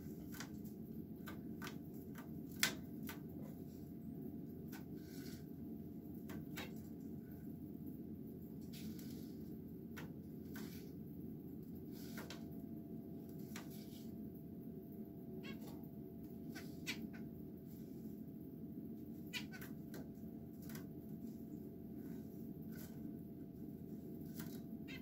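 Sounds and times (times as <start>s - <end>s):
steady low hum: 0.0s - 25.0s
finches giving nasal calls: 16.6s - 17.2s, 19.3s - 19.7s.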